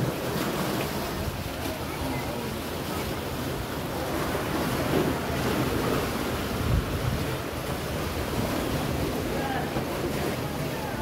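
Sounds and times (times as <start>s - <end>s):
waves washing against rocks: 0.0s - 11.0s
wind buffeting microphone: 3.4s - 11.0s.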